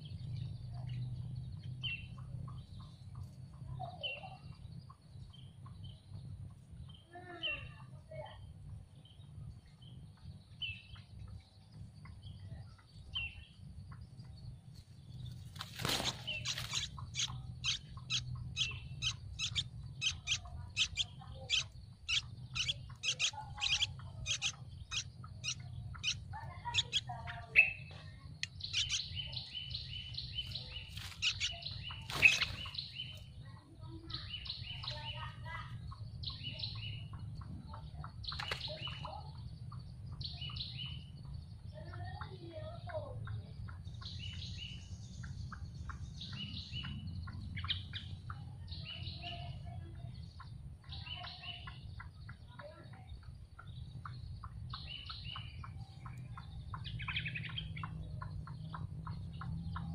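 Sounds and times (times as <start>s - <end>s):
steady low hum: 7.9s - 40.2s
nestlings begging calls: 15.3s - 33.3s, 38.1s - 39.1s.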